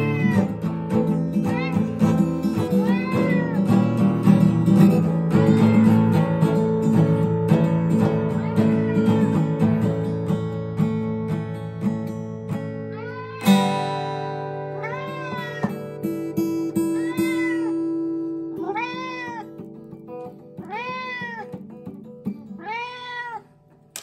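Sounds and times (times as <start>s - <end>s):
cat meowing: 0.0s - 3.9s, 5.4s - 6.1s, 8.1s - 9.5s, 12.9s - 13.8s, 14.6s - 16.0s, 16.6s - 19.7s, 20.6s - 21.6s, 22.6s - 23.5s
acoustic guitar chord and notes: 0.0s - 22.6s.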